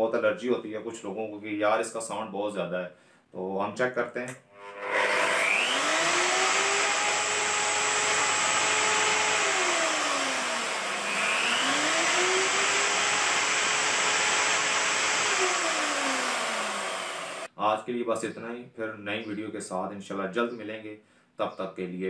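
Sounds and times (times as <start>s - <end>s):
car polisher motor whine: 4.6s - 17.5s.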